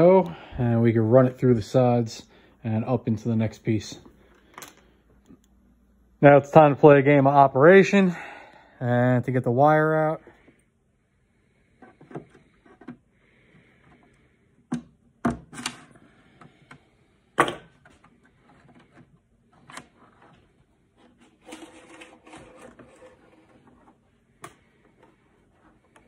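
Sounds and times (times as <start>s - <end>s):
hands tapping and knocking plastic parts: 11.8s - 13.0s, 13.8s - 16.8s.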